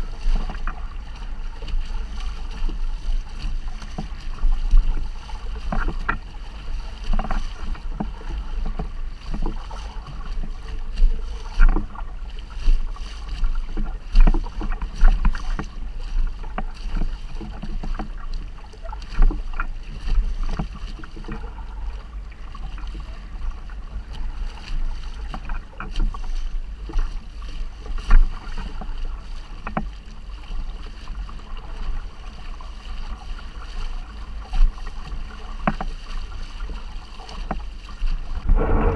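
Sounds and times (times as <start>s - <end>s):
water splashing against hull: 0.0s - 38.9s
wind on microphone: 38.2s - 38.9s.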